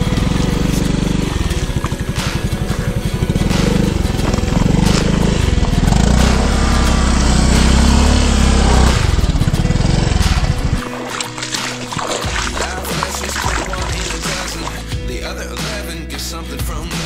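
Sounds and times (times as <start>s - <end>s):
scooter engine running: 0.0s - 15.1s.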